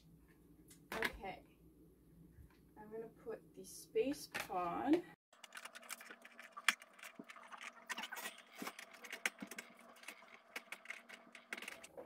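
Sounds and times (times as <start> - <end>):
plastic clicking and scraping: 5.4 - 12.0.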